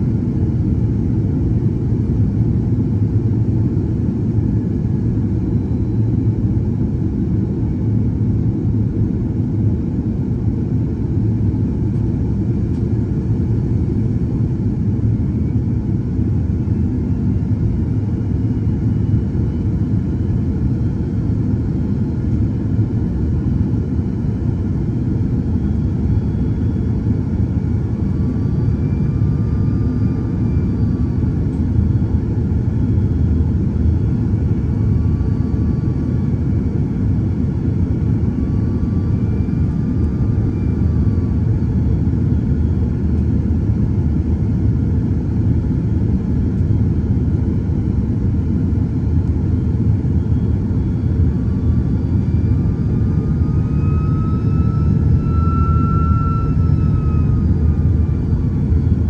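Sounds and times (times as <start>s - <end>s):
airliner cabin engine rumble: 0.0s - 59.0s
faint high whistling tones: 51.6s - 59.0s.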